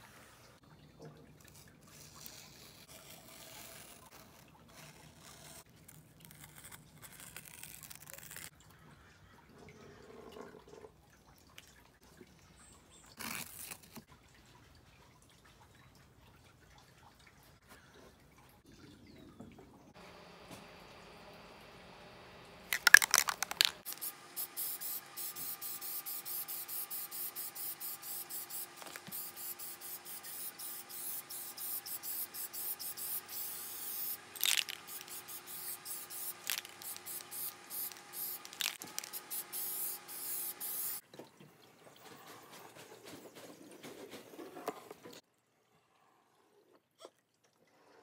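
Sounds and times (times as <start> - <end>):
spray can hissing: 22.7 - 41.0
spray can rattling: 22.7 - 41.0.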